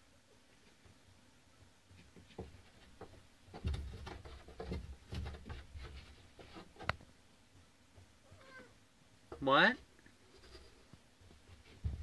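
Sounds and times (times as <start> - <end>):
door rattling and knocking: 3.5 - 5.7.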